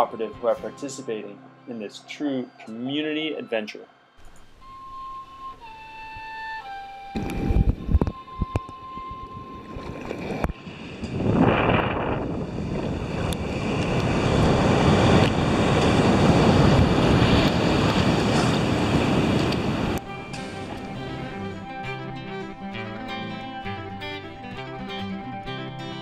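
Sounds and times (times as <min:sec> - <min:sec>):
wind buffeting microphone: 0:06.0 - 0:21.9
ocean surf breaking: 0:09.5 - 0:22.5.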